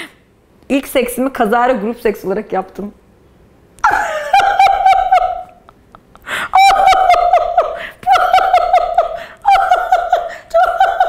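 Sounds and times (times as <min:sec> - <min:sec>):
woman laughing: 0:03.8 - 0:11.0.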